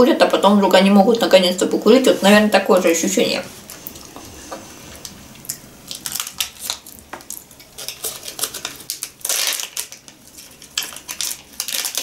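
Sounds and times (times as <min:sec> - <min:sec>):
candy wrapper crinkling: 0:05.0 - 0:12.0.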